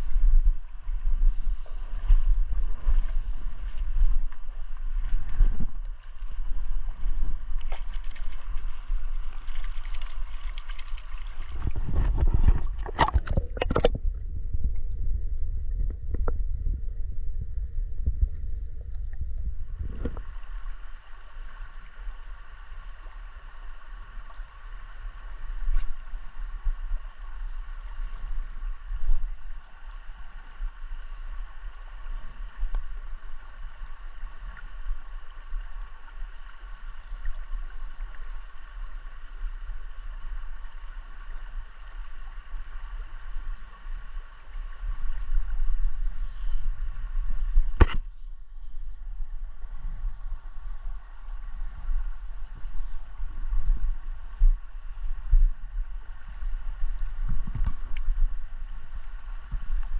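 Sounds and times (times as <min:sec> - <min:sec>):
low rumble: 0:00.0 - 0:20.8.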